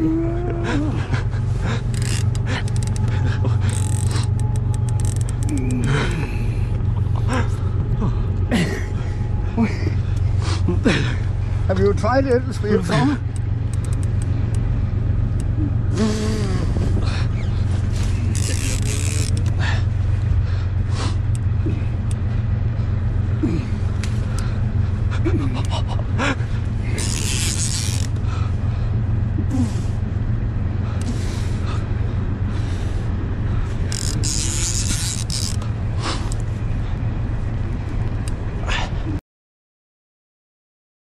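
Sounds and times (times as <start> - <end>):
boat motor droning: 0.0 - 39.2
rain gear rustling: 0.1 - 38.6
fishing rod creaks and clicks: 1.8 - 6.8, 13.2 - 14.6, 18.2 - 19.6, 26.9 - 28.3, 33.8 - 35.7.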